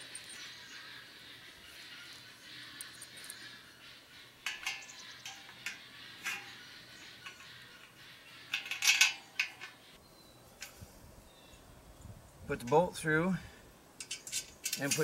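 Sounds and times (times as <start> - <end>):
metal tubes clinking together: 4.4 - 9.9, 14.0 - 15.0.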